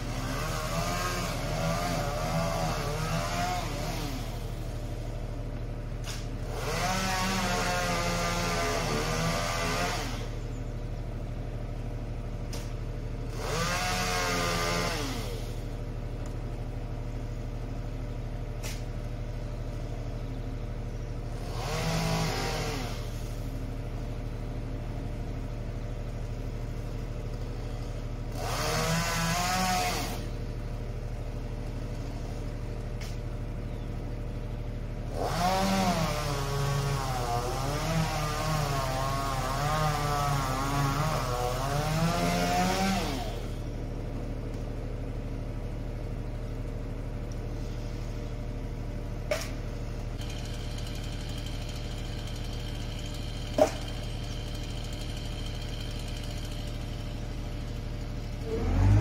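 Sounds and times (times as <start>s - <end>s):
truck engine idling: 0.0s - 6.8s, 10.2s - 14.0s, 15.2s - 21.8s, 23.0s - 29.0s, 30.2s - 35.7s, 43.3s - 59.0s
chainsaw revving: 0.0s - 44.7s, 48.7s - 59.0s.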